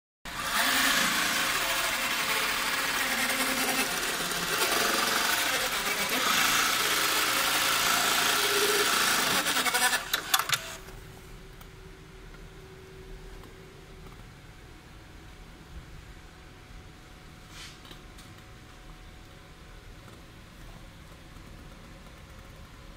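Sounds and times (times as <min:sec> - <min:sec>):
sewing machine stitching leather: 0:00.3 - 0:10.8
sewing machine clicks: 0:06.1 - 0:10.8.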